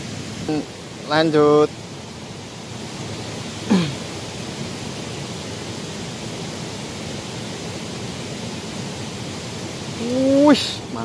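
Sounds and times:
shallow stream rushing: 0.0s - 11.0s.

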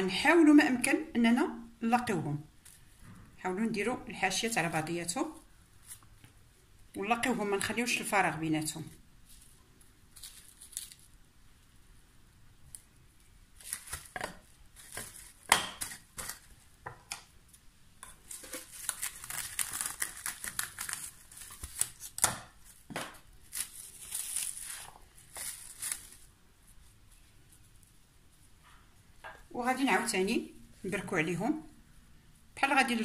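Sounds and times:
cling film crinkling: 9.2s - 11.4s, 12.7s - 16.6s, 18.2s - 26.8s.

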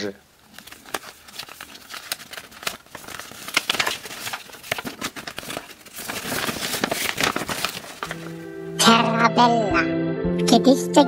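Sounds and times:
paper crinkling: 0.3s - 8.5s.

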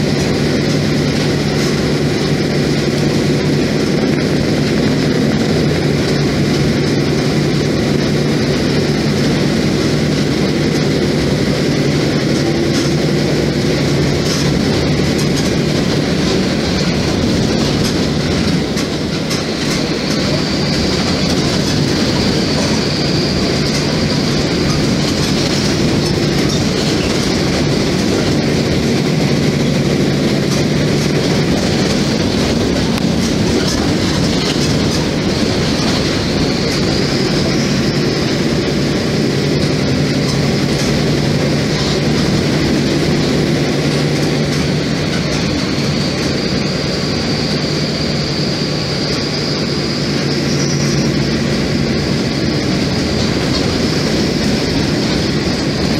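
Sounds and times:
bus diesel engine running: 0.0s - 55.9s
higher whine: 0.0s - 55.9s
road noise: 0.0s - 55.9s.

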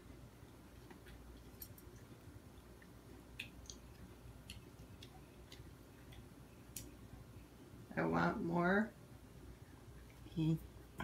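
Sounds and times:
faint eating clicks: 0.4s - 7.2s.

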